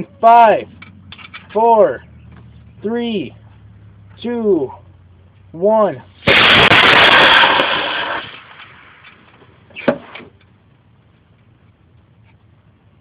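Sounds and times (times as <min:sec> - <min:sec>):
rocket motor rushing burn: 0:06.2 - 0:09.2.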